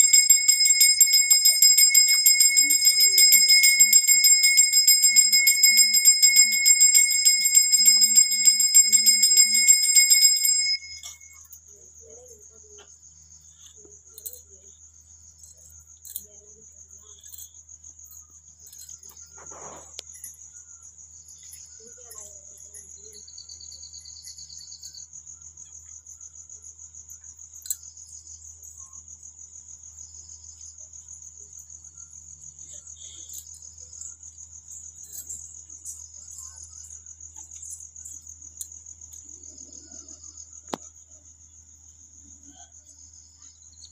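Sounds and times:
metal hand bell ringing: 0:00.0 - 0:11.4
faint crickets chirping: 0:00.0 - 0:43.9.

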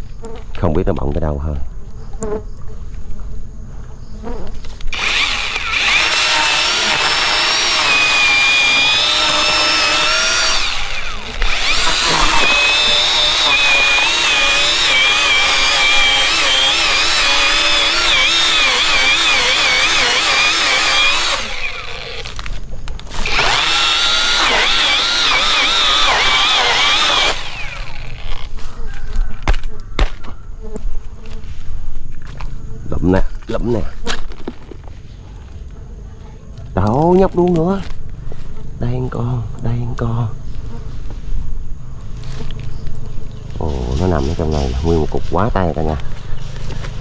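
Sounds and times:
power tool whining: 0:04.8 - 0:28.7.

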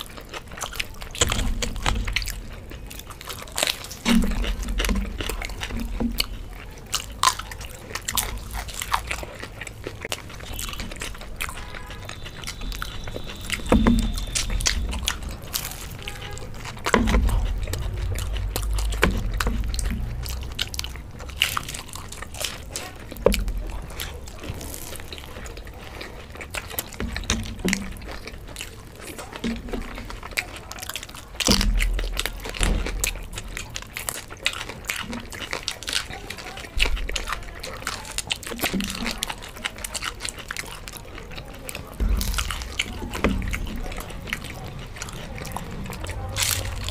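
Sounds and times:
chewing crisp food: 0:00.0 - 0:46.9
dull low thumps: 0:12.4 - 0:22.5, 0:41.9 - 0:46.9.

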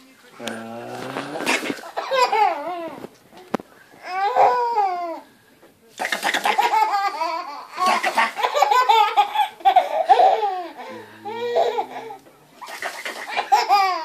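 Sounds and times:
baby laughing: 0:01.4 - 0:03.0, 0:06.0 - 0:14.0.

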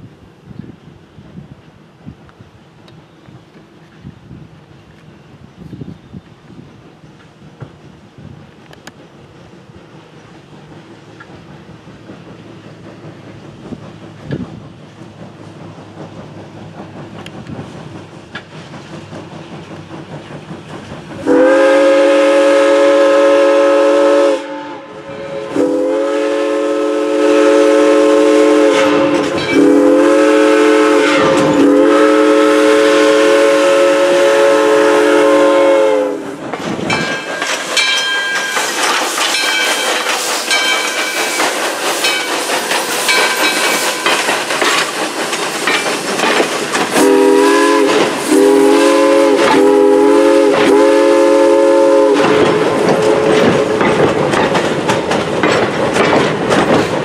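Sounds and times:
train wheels clattering past: 0:06.9 - 0:57.0
steam locomotive whistle: 0:21.2 - 0:36.4, 0:46.9 - 0:53.9.

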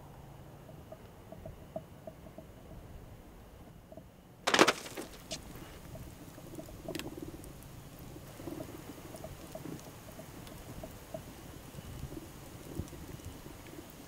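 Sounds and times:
book landing in fire burst: 0:04.5 - 0:05.4
wood fire crackling and popping: 0:04.5 - 0:11.4.

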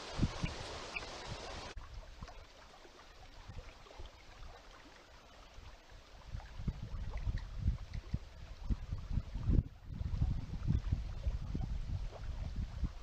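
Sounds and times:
wind on microphone: 0:00.0 - 0:02.5, 0:05.6 - 0:13.0.

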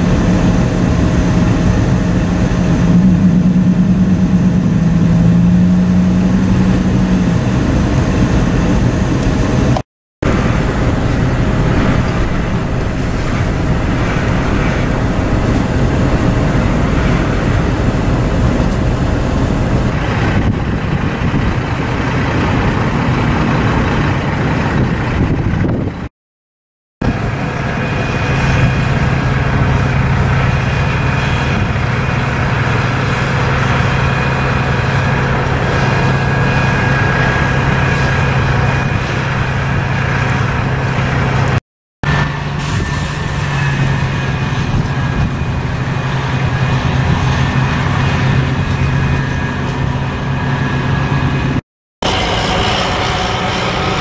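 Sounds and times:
diesel truck engines running: 0:00.0 - 0:26.1, 0:27.0 - 0:54.0.

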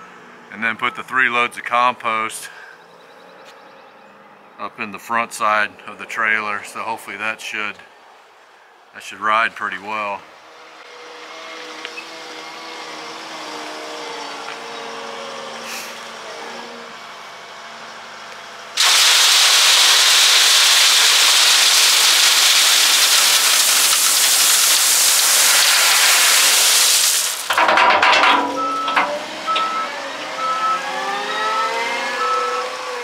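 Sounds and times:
rock pouring into steel trailer bed: 0:18.8 - 0:29.7
loader engine running: 0:27.3 - 0:33.0.

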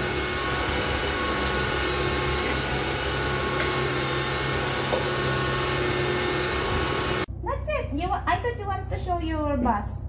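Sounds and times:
electric stand mixer motor humming: 0:00.0 - 0:07.3.

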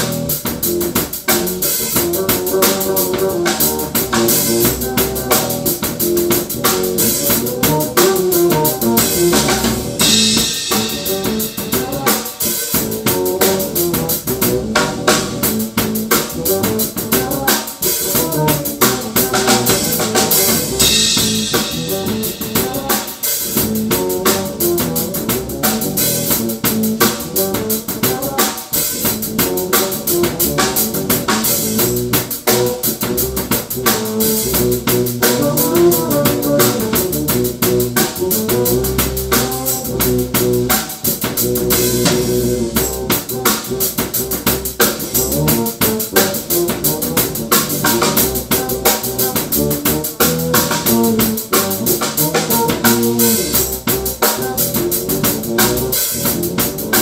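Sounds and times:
drum kit groove: 0:00.0 - 0:57.0
walking bass line: 0:00.0 - 0:57.0.

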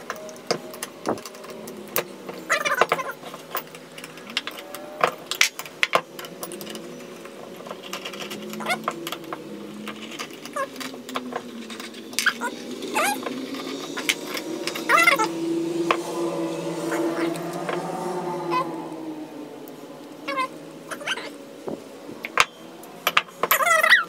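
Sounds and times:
animal calls rising in pitch: 0:01.3 - 0:03.3, 0:06.8 - 0:21.6.

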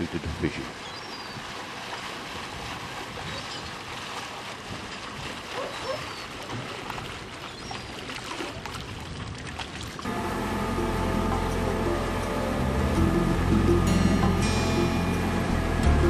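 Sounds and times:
water wash: 0:00.0 - 0:16.0
boat engine running: 0:10.0 - 0:16.0.

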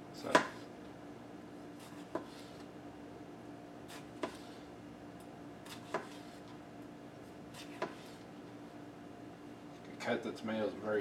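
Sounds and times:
knife slicing tomato: 0:03.8 - 0:04.7, 0:05.6 - 0:06.5, 0:07.5 - 0:08.3.

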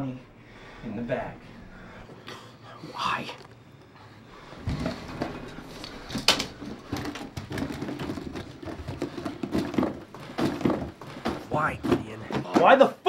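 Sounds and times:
clattering and rustling of handling: 0:04.4 - 0:12.9.

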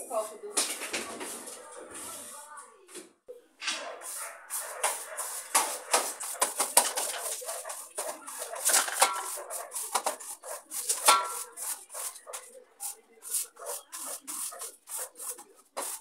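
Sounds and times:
push broom sweeping a floor: 0:03.6 - 0:16.0.

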